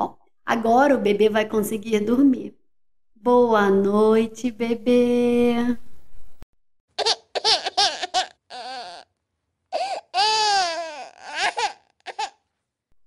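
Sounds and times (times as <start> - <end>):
baby crying: 7.0 - 9.1, 9.7 - 12.4.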